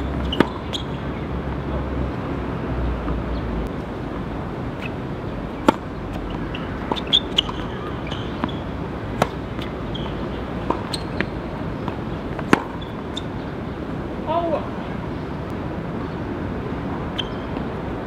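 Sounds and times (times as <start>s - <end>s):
racket hitting tennis ball: 0.1s - 0.9s, 4.7s - 13.3s
shoe squeaks: 0.2s - 1.0s, 6.1s - 11.4s, 12.5s - 13.4s, 17.1s - 17.6s.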